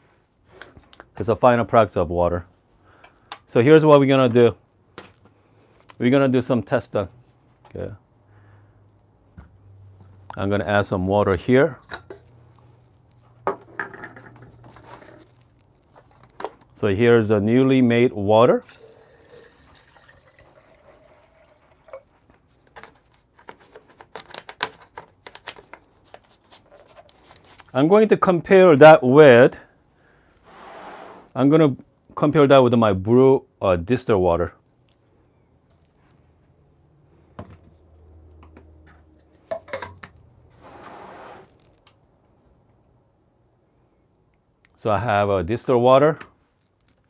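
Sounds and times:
water trickling into kettle: 18.6s - 22.1s
sharp clicks and knocks of handling: 22.6s - 27.7s.

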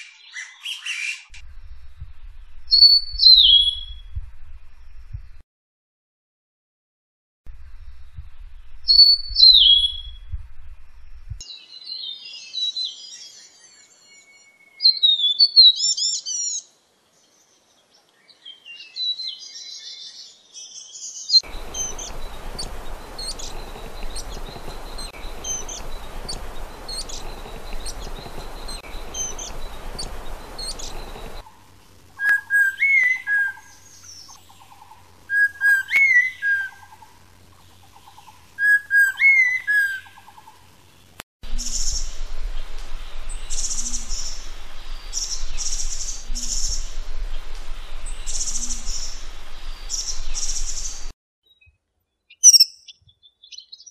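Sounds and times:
steady hiss: 21.4s - 38.6s, 39.2s - 51.2s
birds chattering high calls: 21.4s - 40.7s
bird whistled phrases: 32.2s - 33.7s, 52.4s - 53.9s.

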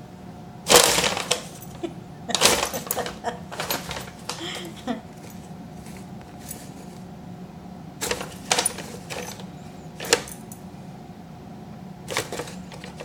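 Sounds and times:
paper bag crinkling and rustling: 0.7s - 7.1s, 8.0s - 10.5s, 12.1s - 13.0s.

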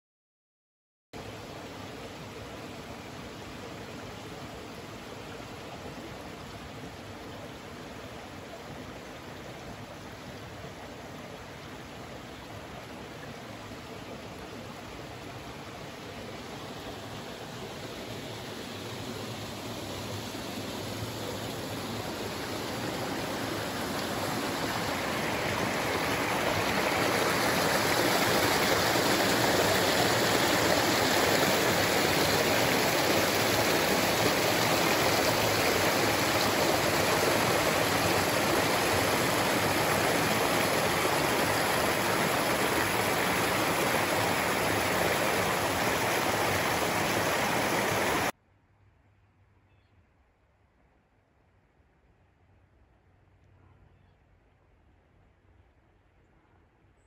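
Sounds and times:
brook splashing over rocks: 16.0s - 48.3s.

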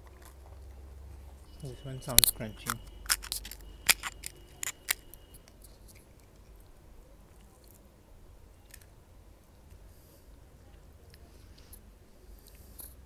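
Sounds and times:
crisp shell cracking: 2.1s - 6.5s
faint handling sounds: 9.6s - 13.0s.

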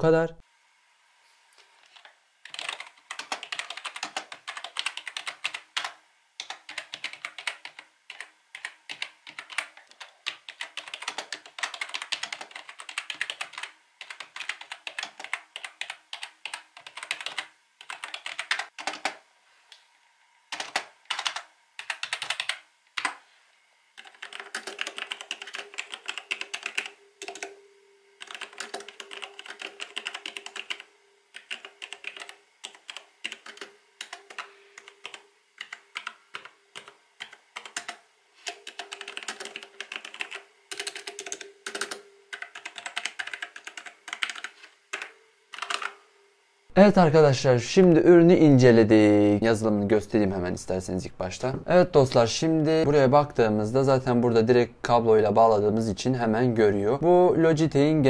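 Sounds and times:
faint steady hum: 0.0s - 58.0s
typing on keyboard: 2.4s - 19.2s, 20.5s - 23.2s, 24.0s - 27.6s, 28.2s - 46.0s.

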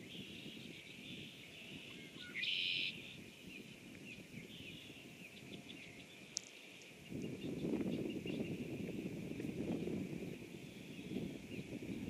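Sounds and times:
birds calling: 0.0s - 12.0s
buzzy trilled bird call: 2.1s - 3.0s.

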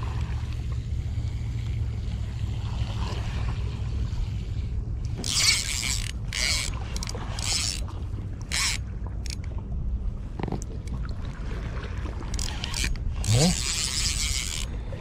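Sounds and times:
fishing reel whirring: 5.0s - 9.4s, 12.3s - 14.9s.

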